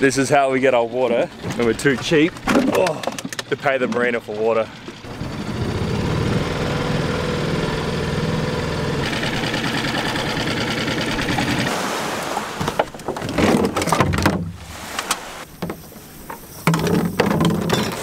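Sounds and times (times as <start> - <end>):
outboard motor running: 0.0 - 18.0
plastic jugs knocking: 12.6 - 14.6, 16.7 - 18.0.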